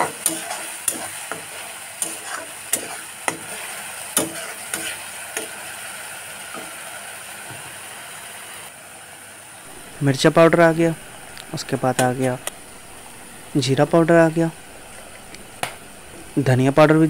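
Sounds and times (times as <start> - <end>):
steel spatula scraping a pan: 0.0 - 5.8
food sizzling in hot oil: 0.0 - 16.8.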